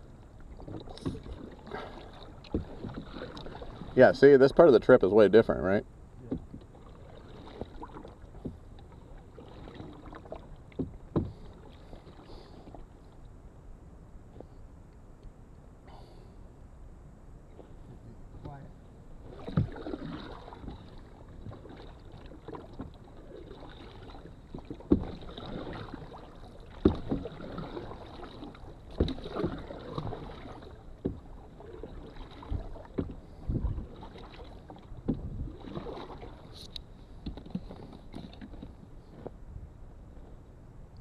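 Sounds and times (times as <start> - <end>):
paddle strokes through water: 0.0 - 14.9, 17.4 - 41.0.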